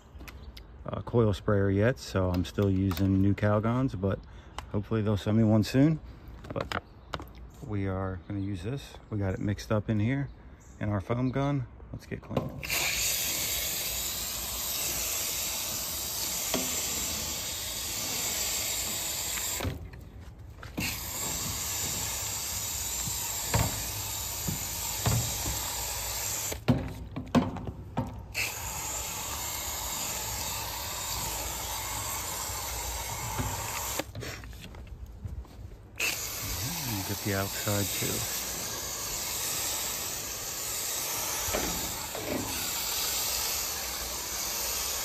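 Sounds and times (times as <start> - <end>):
foam spray hissing: 12.6 - 19.8, 20.7 - 26.7, 28.3 - 34.5, 36.0 - 45.0.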